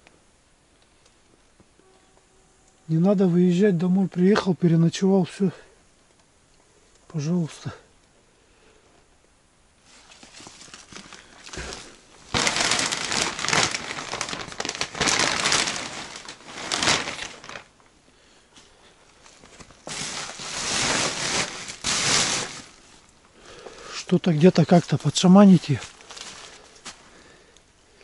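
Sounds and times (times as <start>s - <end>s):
crunching and rustling movement: 9.8s - 17.9s, 18.6s - 27.2s.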